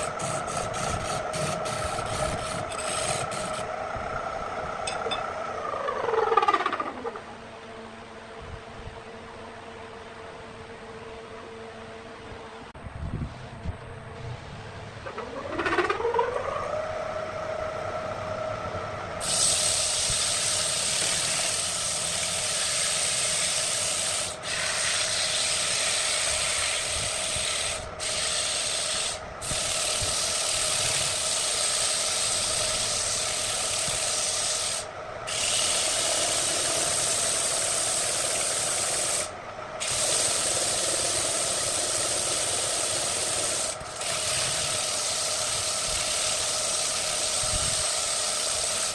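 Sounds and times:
sanding pad hissing on wood: 0.0s - 3.7s, 19.2s - 48.9s
wood lathe motor whine: 0.0s - 7.4s, 15.0s - 48.9s.

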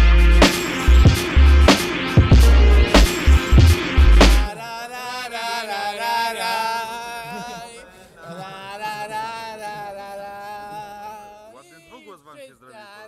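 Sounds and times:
chant-like singing: 4.5s - 12.2s.

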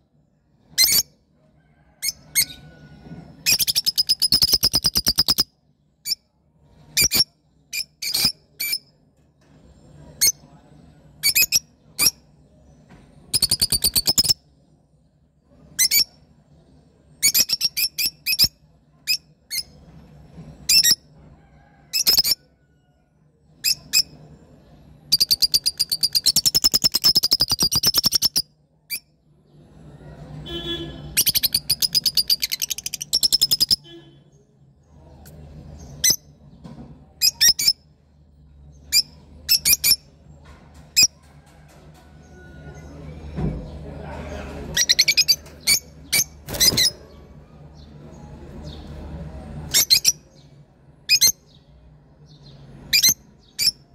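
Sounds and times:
lovebirds chattering: 3.4s - 6.2s, 11.2s - 12.3s, 17.2s - 19.8s, 25.0s - 29.0s, 30.5s - 34.0s, 37.2s - 37.8s, 38.8s - 40.1s, 44.3s - 47.9s, 49.7s - 50.5s, 52.4s - 53.9s.

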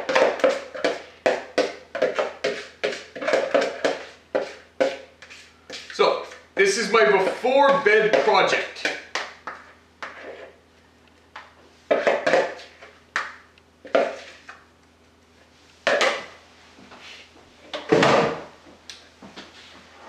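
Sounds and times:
utensil scraping plastic bowl: 0.1s - 9.0s.

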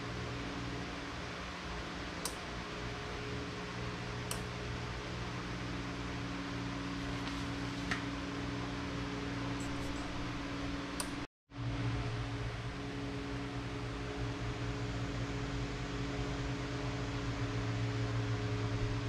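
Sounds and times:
fan whirring: 0.0s - 19.0s
low hum: 8.5s - 19.0s.

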